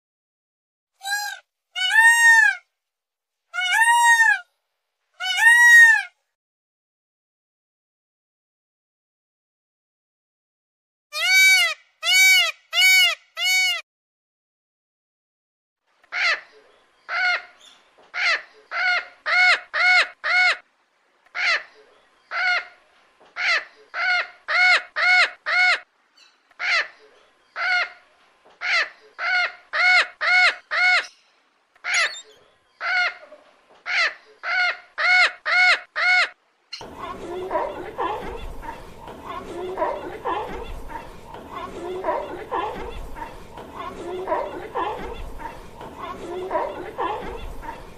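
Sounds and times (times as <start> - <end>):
peafowl calling: 1.0 - 2.6, 3.6 - 4.5, 5.2 - 6.1, 11.2 - 13.8, 31.8 - 47.9.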